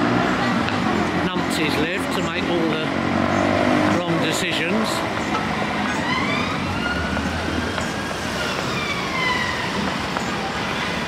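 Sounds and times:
street traffic: 0:00.0 - 0:11.0
siren wailing: 0:05.8 - 0:09.8.

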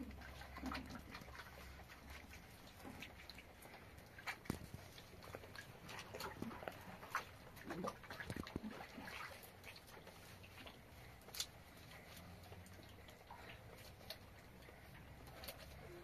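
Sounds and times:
faint water drips and splashes: 0:00.0 - 0:16.0.

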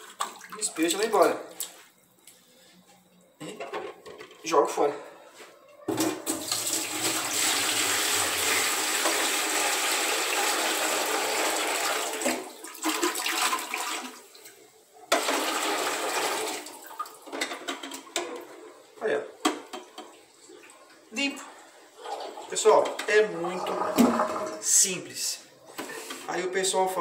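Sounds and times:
water splashing: 0:00.0 - 0:01.8, 0:23.4 - 0:24.6
water pouring into a sink: 0:06.2 - 0:17.3, 0:22.2 - 0:24.6.

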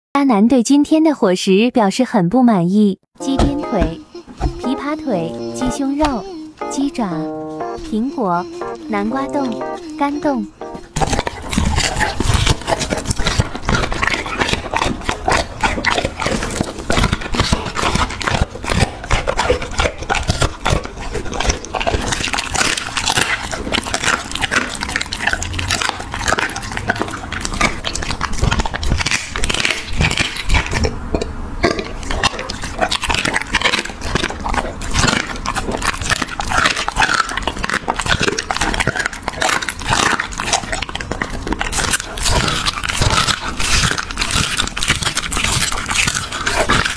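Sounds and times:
bones crunching and cracking: 0:11.0 - 0:46.9
dog chewing bones wetly: 0:11.0 - 0:46.9.

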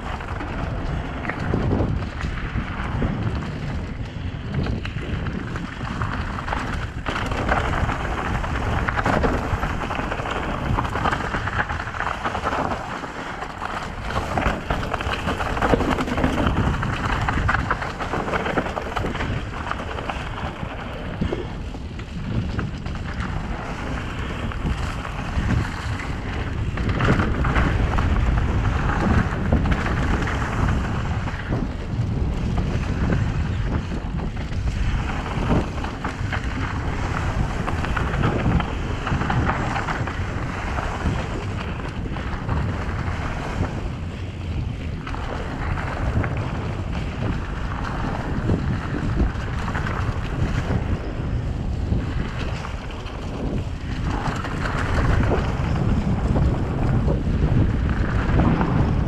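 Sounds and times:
bike knocks and rattles: 0:00.0 - 0:59.0
tyres rolling on dry dirt: 0:00.0 - 0:59.0
wind buffeting microphone: 0:00.0 - 0:59.0.

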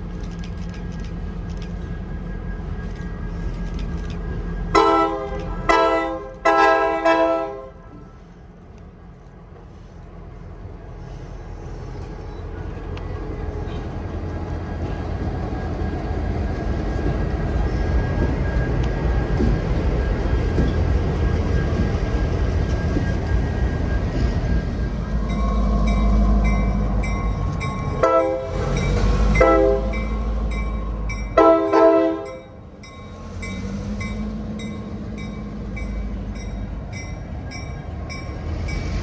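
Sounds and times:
train rumble: 0:00.0 - 0:39.0
locomotive air horn blasts: 0:04.7 - 0:08.2, 0:28.0 - 0:28.7, 0:29.4 - 0:30.0, 0:31.4 - 0:32.6.

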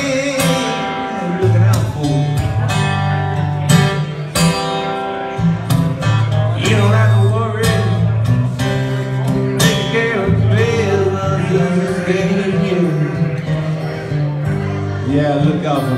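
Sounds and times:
acoustic guitar blues: 0:00.0 - 0:15.9.

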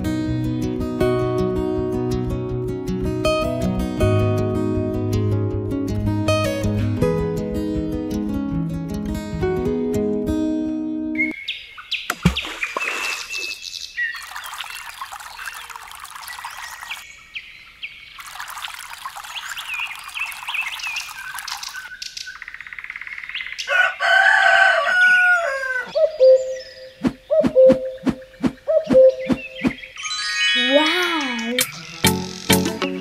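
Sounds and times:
birds chirping: 0:11.2 - 0:23.8, 0:25.3 - 0:33.0
rooster crowing: 0:23.6 - 0:26.0.

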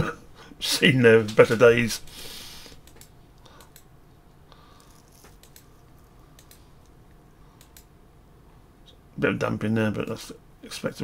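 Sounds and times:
computer mouse clicks: 0:02.7 - 0:03.9, 0:04.8 - 0:07.0, 0:07.6 - 0:07.9.

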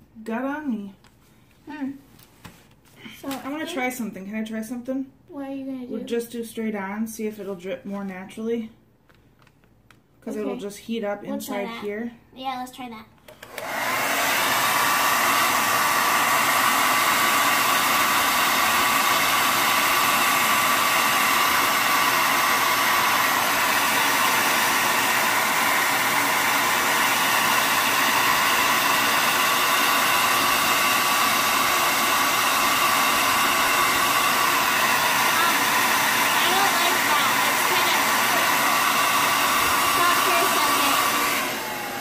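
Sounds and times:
hair dryer running: 0:03.0 - 0:03.9, 0:13.3 - 0:42.0.

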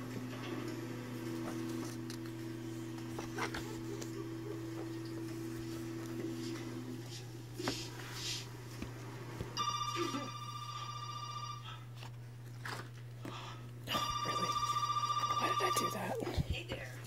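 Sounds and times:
telephone ringing: 0:09.6 - 0:12.1, 0:13.9 - 0:16.3.

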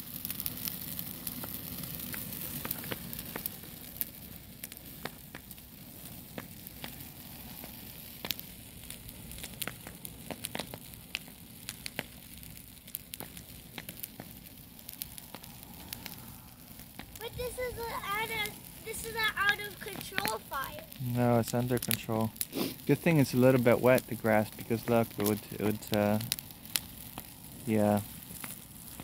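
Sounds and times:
brush fire crackling and popping: 0:00.0 - 0:29.0.

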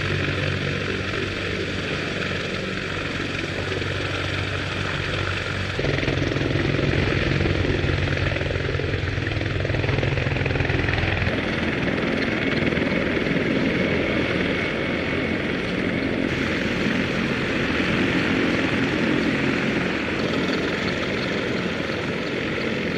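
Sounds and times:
helicopter engine and rotor noise: 0:00.0 - 0:22.9.

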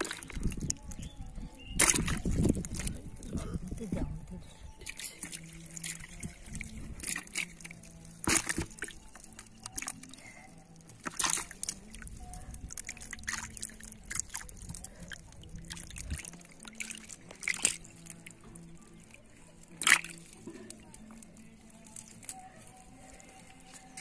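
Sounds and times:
fish splashing in water: 0:00.0 - 0:00.8, 0:01.8 - 0:02.9, 0:05.2 - 0:18.4, 0:19.0 - 0:20.4
wet net rustling: 0:05.2 - 0:24.0.

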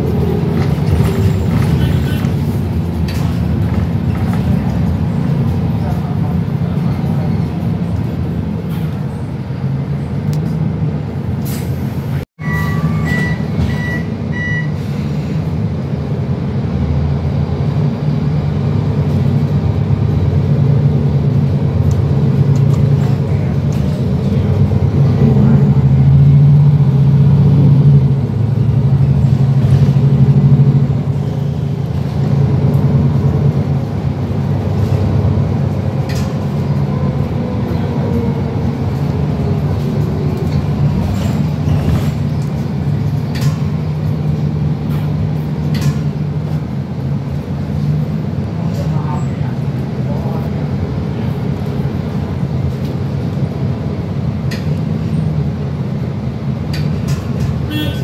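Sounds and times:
bus engine accelerating: 0:00.0 - 0:58.0
road noise: 0:00.0 - 0:58.0
short electronic beeps: 0:12.4 - 0:14.8.

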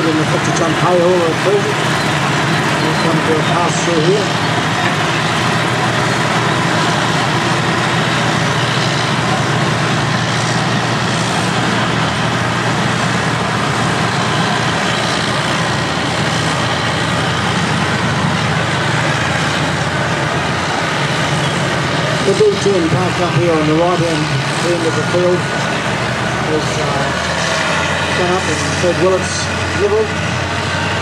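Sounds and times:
bulldozer diesel engine running: 0:00.0 - 0:31.0
heavy earthmoving machines: 0:00.0 - 0:31.0.

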